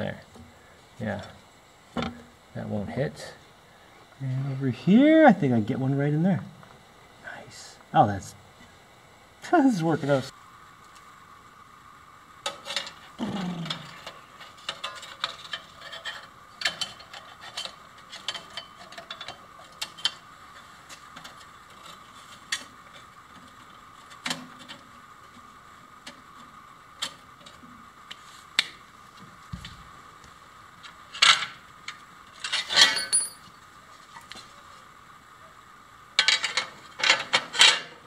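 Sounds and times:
metal scraping clank: 32.4s - 33.5s.

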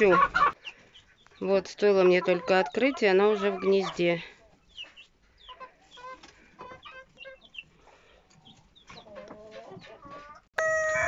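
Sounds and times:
chickens clucking: 0.0s - 11.0s
rooster crowing: 10.6s - 11.0s.

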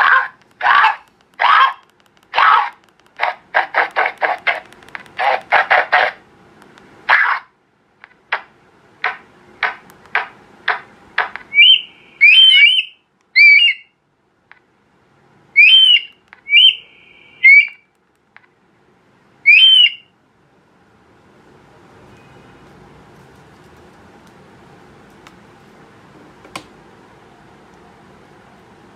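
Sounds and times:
harsh bird calls from speaker: 7.1s - 7.5s, 11.5s - 13.9s, 15.6s - 17.8s, 19.5s - 20.1s
whistled bird calls from speaker: 11.5s - 13.9s, 15.6s - 17.8s, 19.5s - 20.1s.

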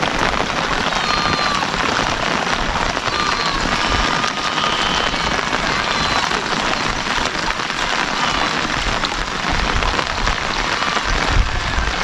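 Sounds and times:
heavy rain falling: 0.0s - 12.0s.

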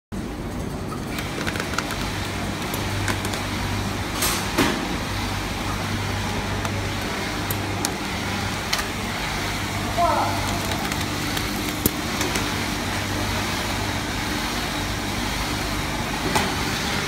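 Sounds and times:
machine humming: 0.2s - 17.0s.

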